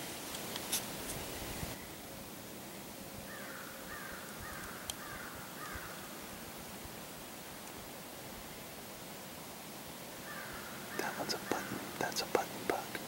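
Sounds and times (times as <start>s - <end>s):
woodland hiss: 0.0s - 13.0s
bird calling: 3.3s - 6.2s, 10.2s - 13.0s
faint clicks: 4.6s - 5.0s.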